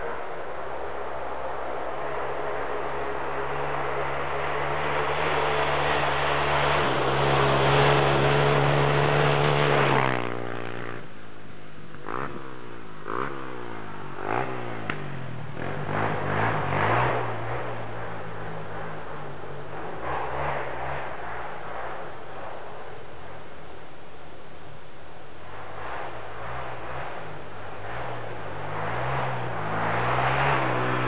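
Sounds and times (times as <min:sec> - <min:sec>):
quad engine revving: 0:04.6 - 0:11.1, 0:12.0 - 0:19.0, 0:26.4 - 0:31.0.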